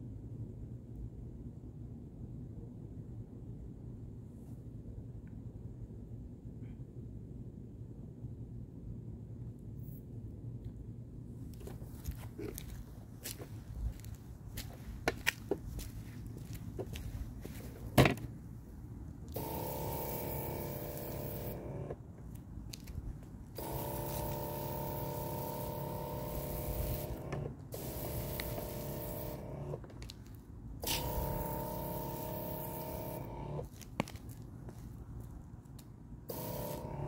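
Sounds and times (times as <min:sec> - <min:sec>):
spray hissing from nozzle: 0:19.3 - 0:21.8, 0:23.6 - 0:29.7, 0:30.8 - 0:33.4, 0:36.3 - 0:37.0
sprayer pump hum: 0:19.3 - 0:22.1, 0:23.5 - 0:30.1, 0:30.8 - 0:33.7, 0:36.3 - 0:37.0.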